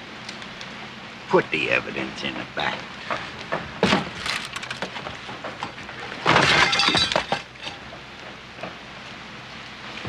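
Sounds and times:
crashing and shattering glass: 6.2 - 7.8.

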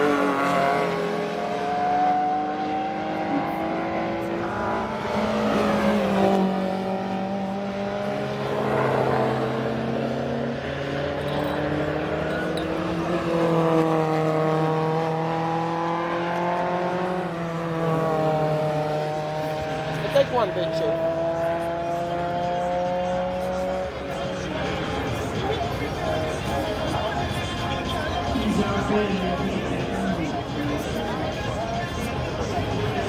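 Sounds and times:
race cars passing at speed: 0.0 - 33.0.

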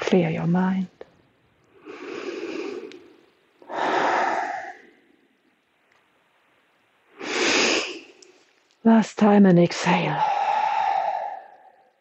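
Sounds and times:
woman breathing deeply: 1.7 - 5.2, 10.2 - 11.9.

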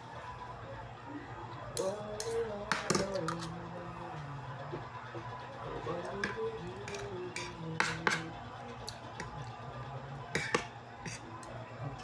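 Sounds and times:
cutlery clinking on a plate: 1.8 - 3.5, 10.4 - 11.2.

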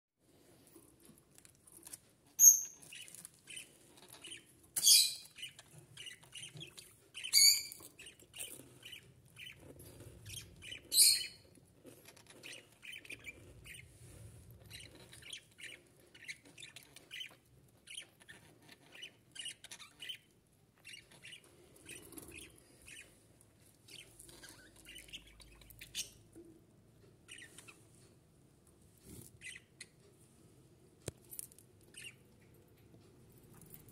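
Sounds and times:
budgerigars chirping and warbling: 2.4 - 23.2, 23.9 - 26.4, 27.2 - 27.8, 29.2 - 30.0, 31.9 - 32.2.

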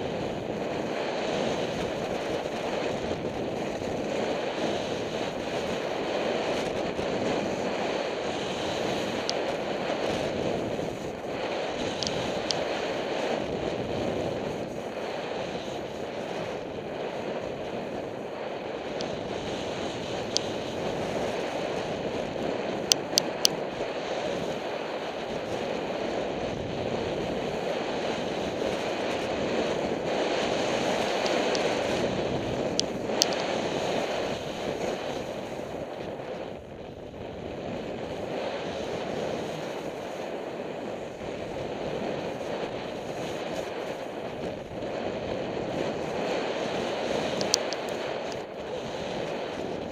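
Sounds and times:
skis hissing on packed snow: 0.0 - 22.8
wind rushing over microphone: 0.0 - 49.9.

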